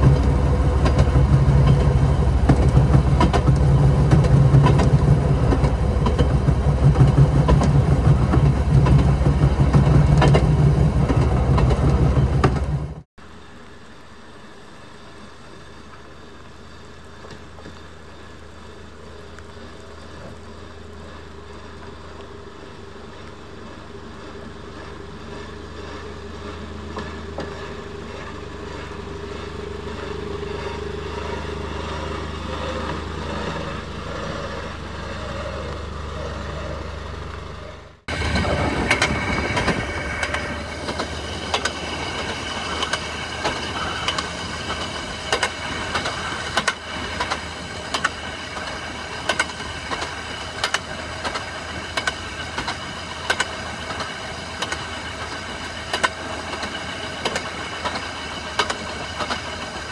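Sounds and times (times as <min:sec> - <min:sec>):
railroad motorcar engine drone: 0:00.0 - 0:59.9.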